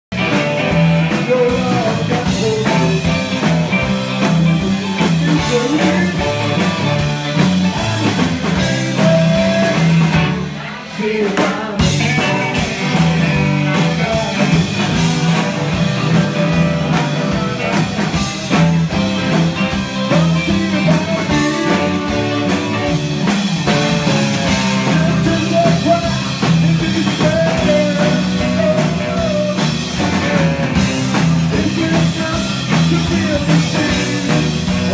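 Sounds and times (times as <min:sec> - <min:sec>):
drum kit: 0:00.0 - 0:34.9
electric guitar: 0:00.1 - 0:34.9
man singing: 0:00.2 - 0:17.7, 0:18.5 - 0:23.0, 0:23.7 - 0:34.9
saxophone: 0:05.9 - 0:08.0, 0:14.2 - 0:25.2.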